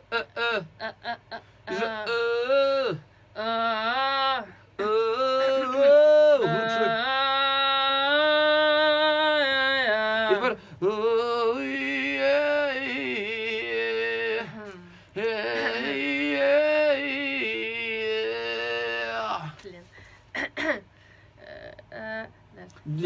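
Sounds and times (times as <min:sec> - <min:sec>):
person singing long notes: 0:01.7 - 0:19.5.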